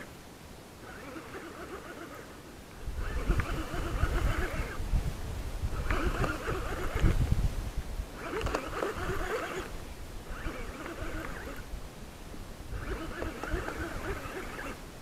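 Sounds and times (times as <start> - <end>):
fishing reel being cranked: 0.8 - 2.2, 3.0 - 4.8, 5.7 - 7.2, 8.1 - 11.7, 12.7 - 14.8
wind rumble on microphone: 2.8 - 15.0.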